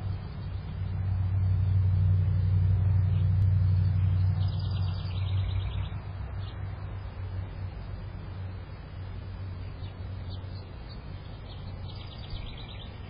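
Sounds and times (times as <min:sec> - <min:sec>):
low rumble: 0:00.0 - 0:12.5
high-pitched bird trill: 0:03.9 - 0:06.6.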